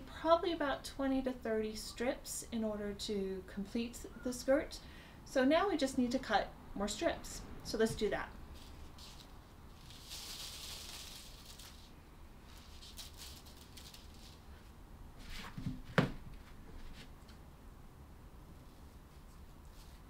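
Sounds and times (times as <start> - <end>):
netting rustling: 8.4 - 15.8.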